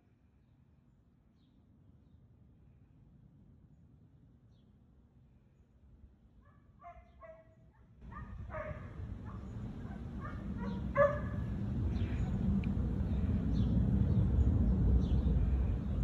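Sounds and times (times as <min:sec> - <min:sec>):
husky barking and yipping: 0:06.4 - 0:11.6.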